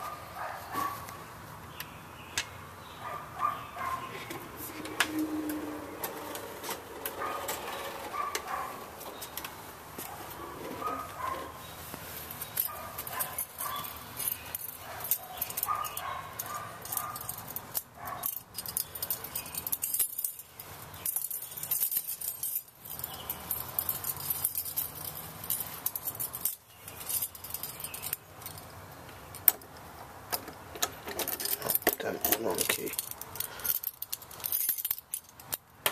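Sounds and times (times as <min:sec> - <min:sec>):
keys jangling: 0:12.2 - 0:28.8, 0:31.1 - 0:35.6.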